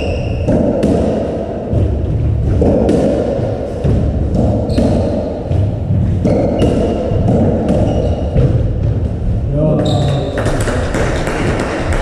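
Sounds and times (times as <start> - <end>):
ball hitting walls: 0.0 - 12.0
low rumble of hall: 0.0 - 12.0
racket hitting ball: 0.1 - 9.1, 10.3 - 12.0
shoe squeaks on wooden floor: 6.2 - 8.4, 9.8 - 10.4.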